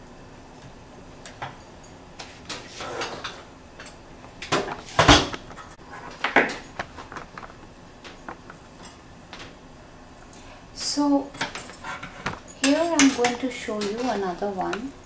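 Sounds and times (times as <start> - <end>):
metal skewers clattering on grill: 2.2 - 9.6, 11.3 - 15.0.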